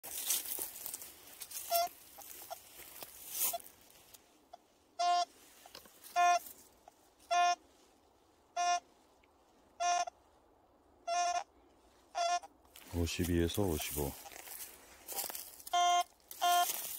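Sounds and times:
rustling through dry leaves: 0:00.0 - 0:09.6, 0:12.7 - 0:16.9
metal detector short beeps: 0:06.1 - 0:06.4, 0:08.6 - 0:08.8, 0:15.7 - 0:16.9.

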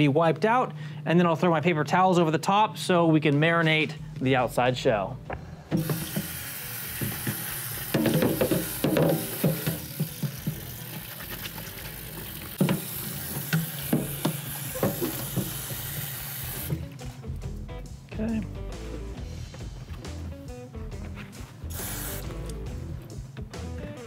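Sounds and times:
tap water running into sink: 0:05.7 - 0:16.9
helmet knocking against sink: 0:07.0 - 0:10.7.

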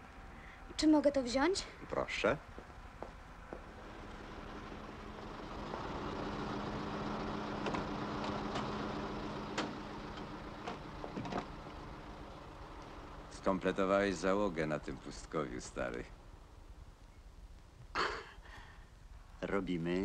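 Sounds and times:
vehicle engine running: 0:02.4 - 0:17.1.

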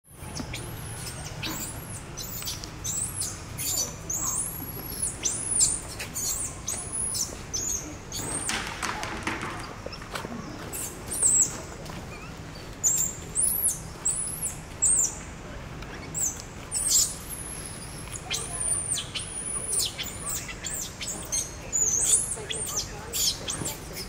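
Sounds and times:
baby monkey squealing: 0:00.5 - 0:08.5, 0:16.1 - 0:24.0.

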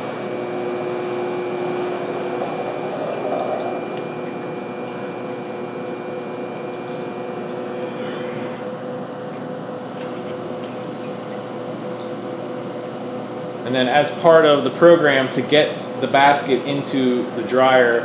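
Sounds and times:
steady machine hum: 0:00.0 - 0:18.0
thin high whine: 0:00.2 - 0:09.7.

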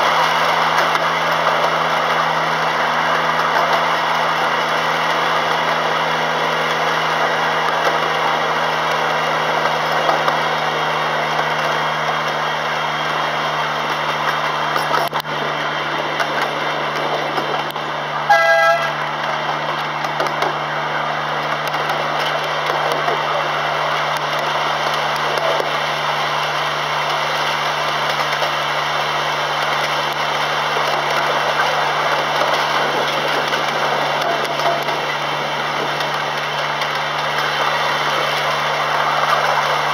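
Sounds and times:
miniature train engine hum: 0:00.0 - 0:39.9
train horn toot: 0:18.2 - 0:19.1.

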